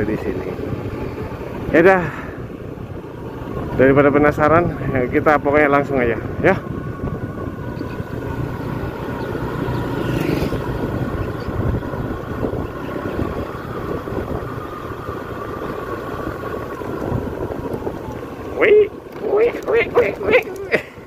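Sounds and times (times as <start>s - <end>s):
vehicle engine whine: 0.0s - 21.0s
wind rumble on microphone: 0.0s - 21.0s.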